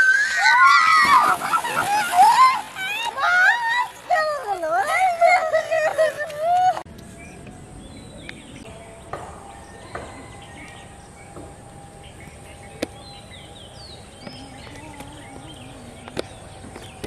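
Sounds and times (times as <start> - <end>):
small birds chirping: 7.0 - 17.0.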